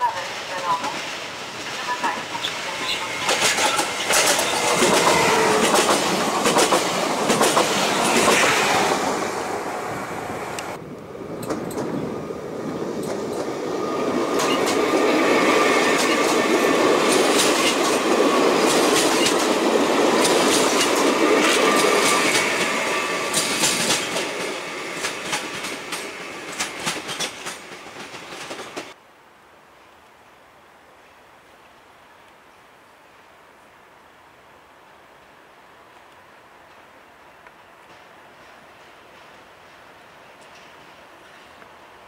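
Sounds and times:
train rolling rumble with whine: 0.6 - 29.0
wheels clicking over rail joints: 2.4 - 8.5, 15.8 - 29.0.

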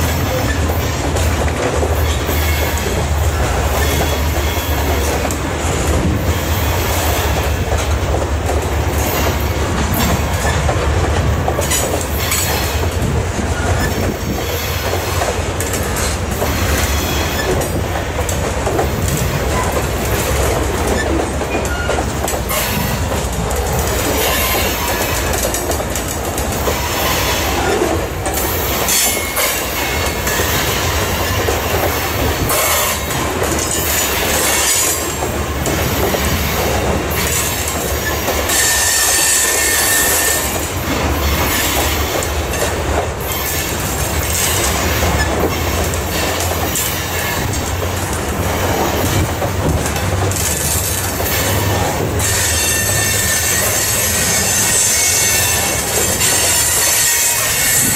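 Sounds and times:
freight train wheels rumbling and clacking: 0.0 - 57.9
high wheel squeal: 38.0 - 40.6, 51.5 - 57.9.

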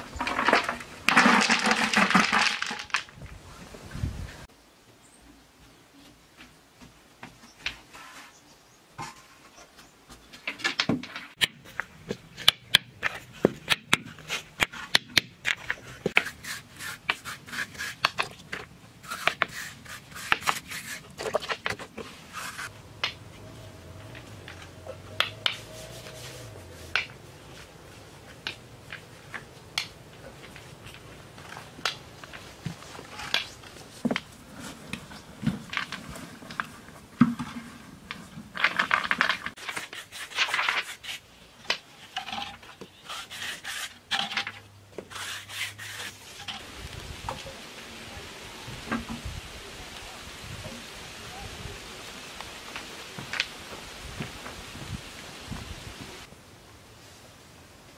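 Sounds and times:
river stones clacking together: 0.0 - 3.3.

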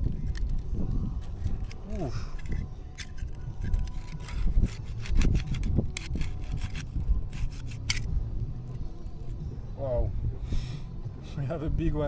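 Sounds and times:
knife scraping clam shell: 0.1 - 8.1.

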